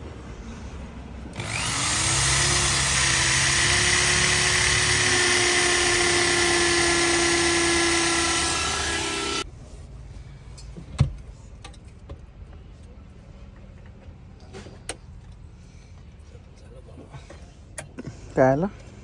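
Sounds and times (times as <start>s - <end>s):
electric drill whining: 1.4s - 9.4s.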